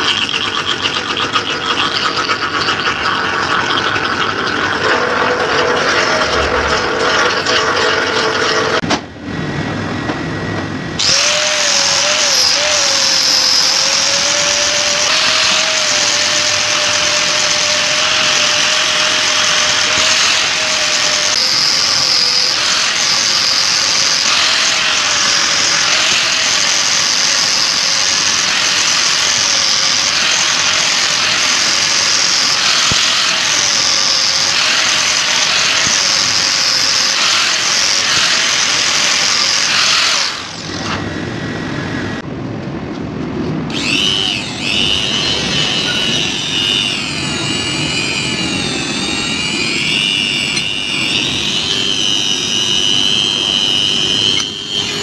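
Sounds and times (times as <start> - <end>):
rotary tool whine on steel: 10.4 - 42.2, 43.7 - 55.0
angle grinder on wood: 11.0 - 41.2, 43.7 - 55.0.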